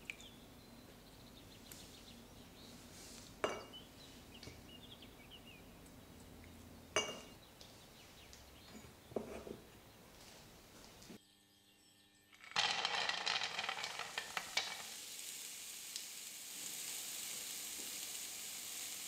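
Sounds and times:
almonds clinking into dish: 12.4s - 15.0s.

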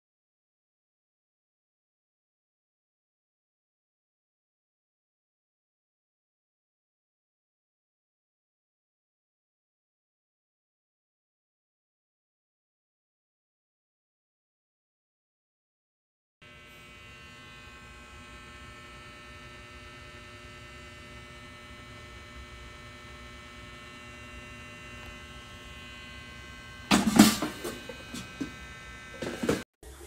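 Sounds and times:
air fryer electric hum: 16.4s - 30.0s.

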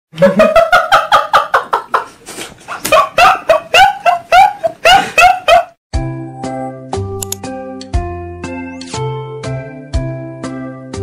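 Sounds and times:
man laughing high-pitched: 3.5s - 5.6s.

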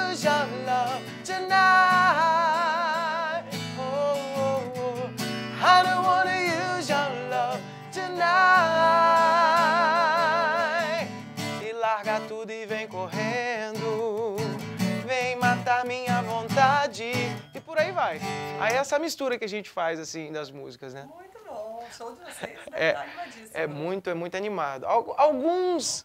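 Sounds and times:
man singing: 0.0s - 18.8s
acoustic guitar: 0.0s - 19.5s, 21.1s - 24.0s.

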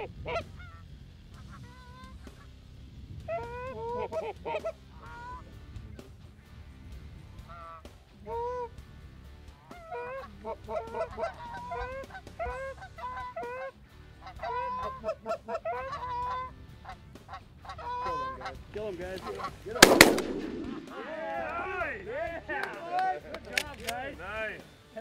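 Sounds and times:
geese honking: 0.0s - 2.5s, 3.3s - 5.6s, 7.4s - 8.8s, 9.5s - 21.9s
shotgun blasts: 19.8s - 21.3s.

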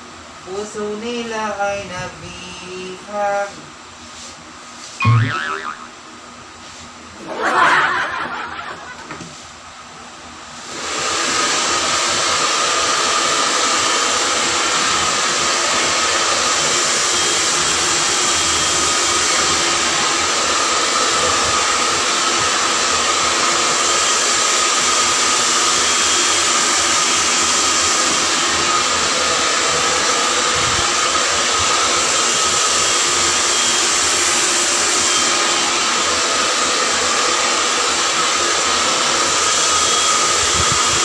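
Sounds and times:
short loud sound: 5.0s - 6.0s
hair dryer running: 7.2s - 9.4s, 10.5s - 41.0s.

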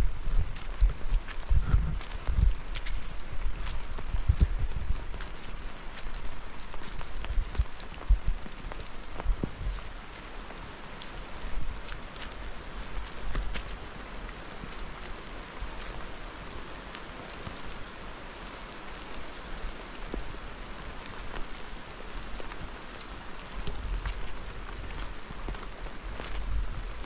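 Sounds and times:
low rumble: 0.0s - 5.1s
sharp ticks of raindrops: 0.0s - 27.0s
steady rain falling: 0.0s - 27.0s.

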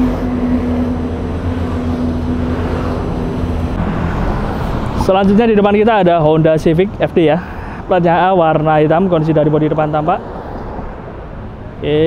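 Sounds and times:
steady low hum: 0.0s - 7.8s
vehicle engines running: 0.0s - 12.0s.

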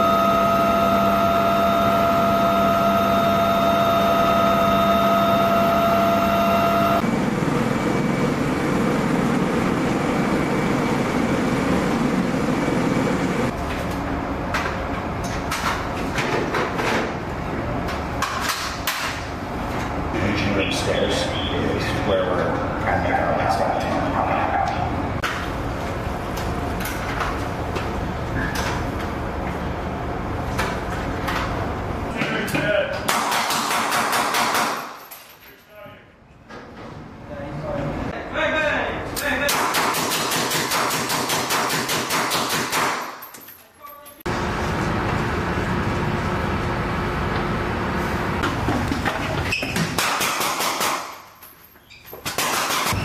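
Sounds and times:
machinery rush with low hum: 0.0s - 15.1s.

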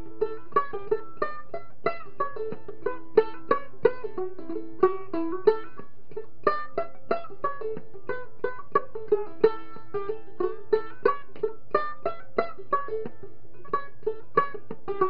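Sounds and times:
banjo ukulele plucked melody: 0.0s - 15.0s.

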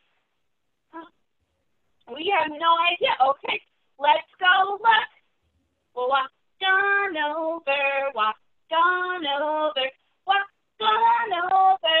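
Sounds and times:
woman singing unaccompanied: 2.0s - 5.2s, 5.9s - 12.0s.

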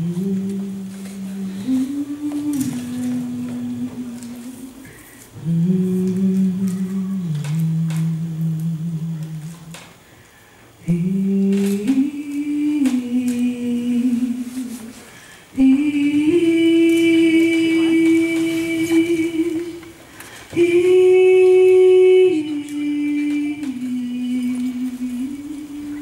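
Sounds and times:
group singing long held notes: 10.9s - 19.9s, 20.5s - 26.0s.

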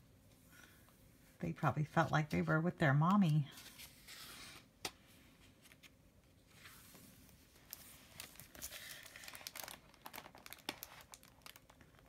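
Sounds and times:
book pages turning: 3.1s - 12.0s.

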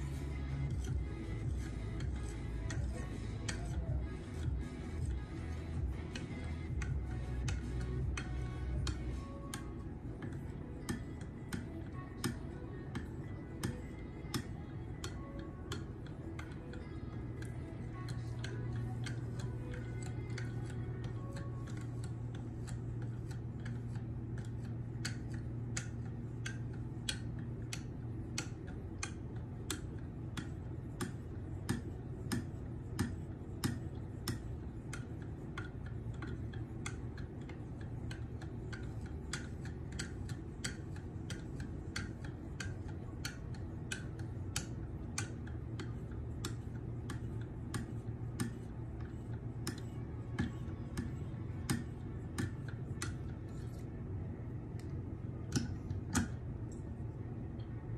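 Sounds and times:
knife honing strokes with clicks: 0.0s - 53.9s.

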